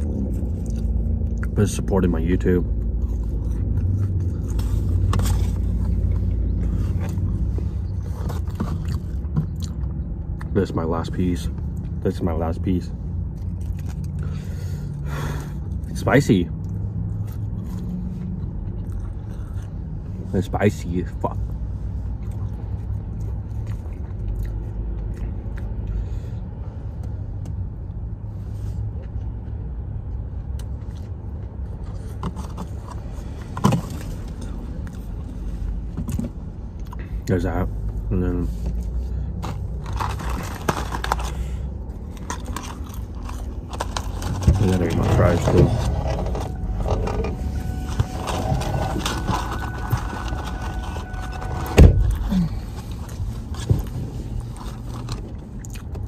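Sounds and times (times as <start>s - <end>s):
chewing: 0.0s - 1.6s, 2.8s - 10.5s, 16.6s - 19.8s, 22.1s - 26.0s, 52.1s - 56.0s
person chewing and licking fingers: 0.0s - 1.6s, 22.1s - 25.9s, 55.0s - 56.0s
car idling: 37.0s - 55.6s
cardboard box rustling: 43.4s - 54.0s.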